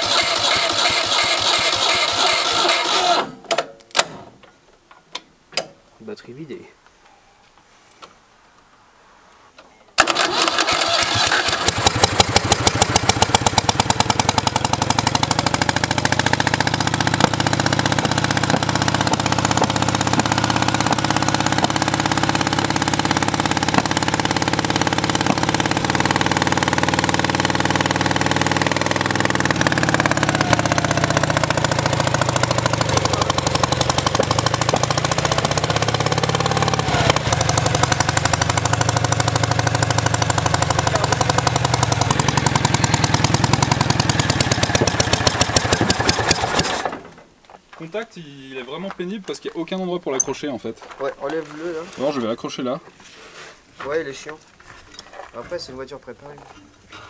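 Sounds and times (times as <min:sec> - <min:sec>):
car engine starting and revving: 0:10.0 - 0:47.0.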